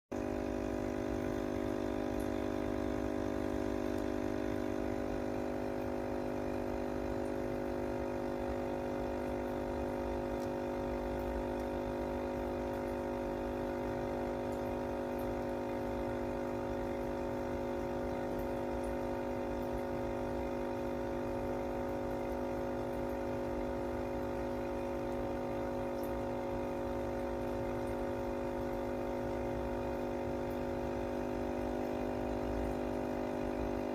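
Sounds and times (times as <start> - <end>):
aquarium pump humming: 0.1 - 33.9.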